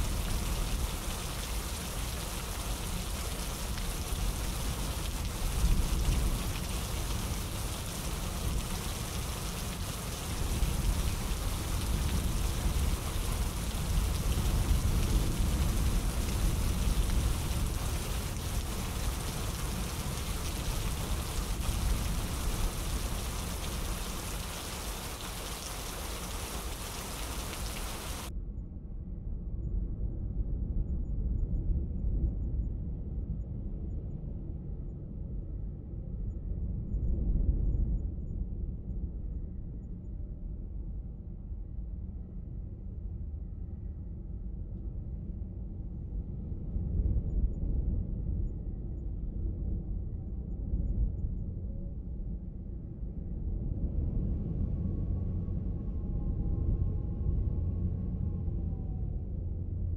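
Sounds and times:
steady rain hiss: 0.0s - 28.3s
strong low rumble: 0.0s - 59.9s.

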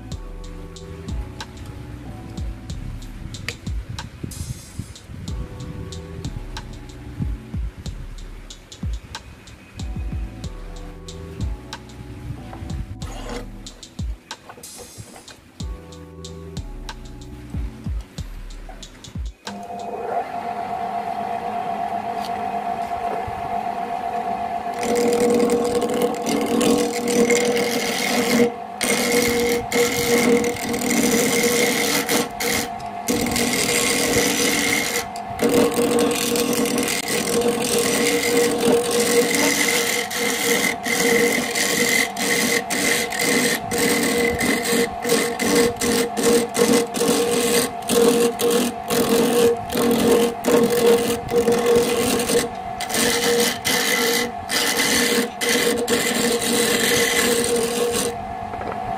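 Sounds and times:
turning tool scraping wood: 12.6s - 15.5s, 24.6s - 58.9s
lathe motor whine: 19.5s - 58.9s.

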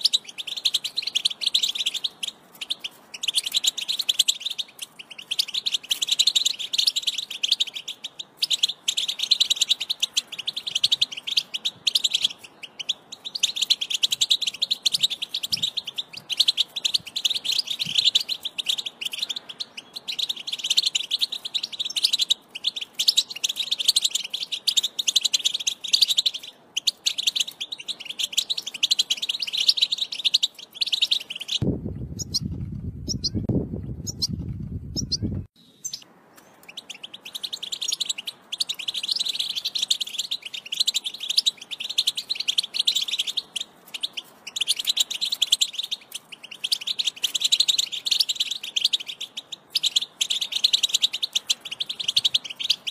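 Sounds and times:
bird twittering song: 0.0s - 52.9s
low rumble: 31.6s - 35.5s.

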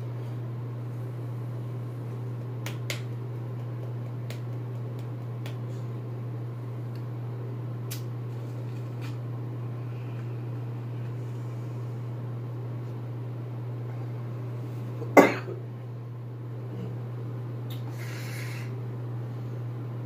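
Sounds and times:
steady low hum: 0.0s - 20.0s
man coughing: 15.2s - 15.6s
breathy hiss: 17.8s - 18.8s.

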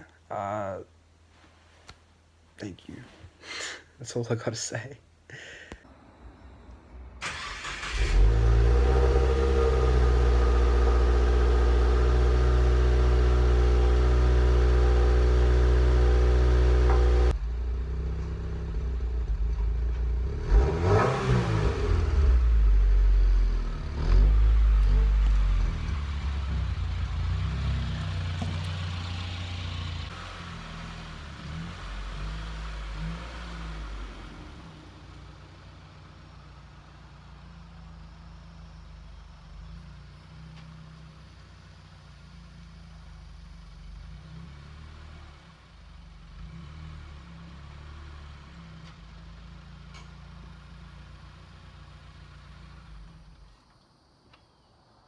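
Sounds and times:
car engine starting and idling: 5.9s - 53.6s
engine revving: 7.2s - 35.9s, 44.0s - 49.0s.

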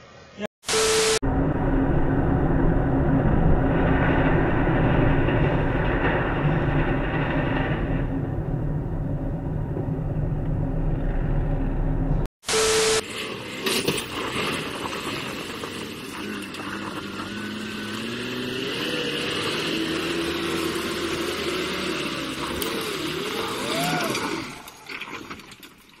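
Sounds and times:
truck engine revving hard: 12.9s - 24.7s.

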